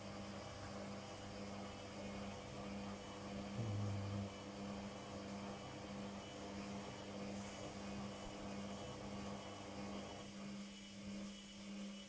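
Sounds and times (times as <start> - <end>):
washing machine motor humming: 0.0 - 12.0
deeper louder hum: 3.6 - 4.2.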